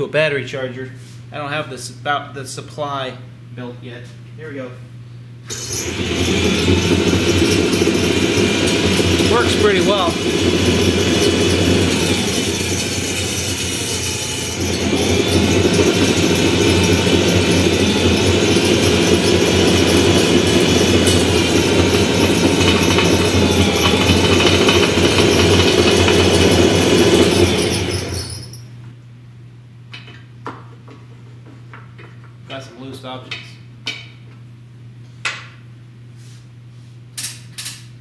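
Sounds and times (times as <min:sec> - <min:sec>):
coil winder motor running roughly: 0:05.5 - 0:28.6.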